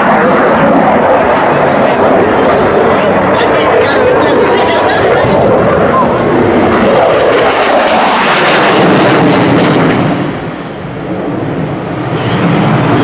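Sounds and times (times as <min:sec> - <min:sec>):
crackling jet roar: 0:00.0 - 0:13.0.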